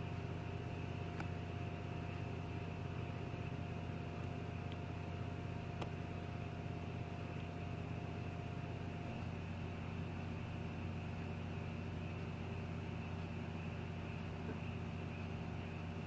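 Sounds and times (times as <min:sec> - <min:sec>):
low hum with hiss: 0:00.0 - 0:16.0.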